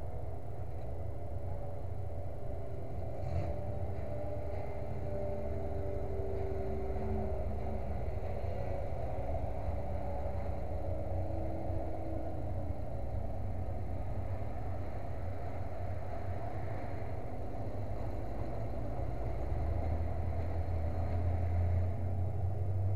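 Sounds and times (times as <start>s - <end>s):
engine rumbling: 0.0s - 22.9s.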